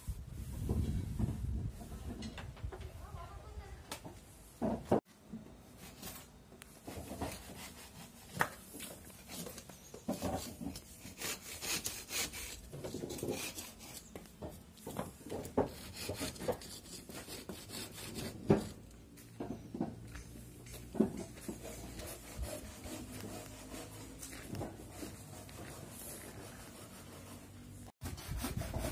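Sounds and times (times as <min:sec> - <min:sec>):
knife shaving wood: 0:07.0 - 0:14.1.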